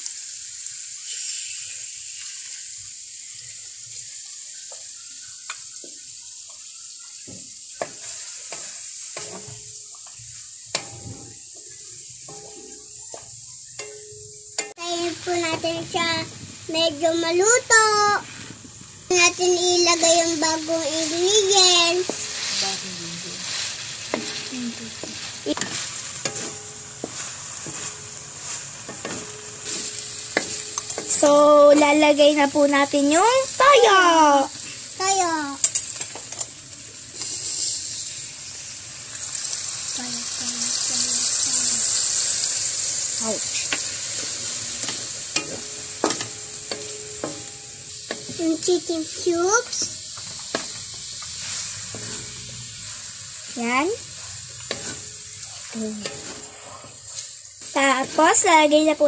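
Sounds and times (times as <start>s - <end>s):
chicken frying in oil: 0.0s - 59.0s
spatula scraping pan: 20.3s - 32.5s, 43.2s - 59.0s.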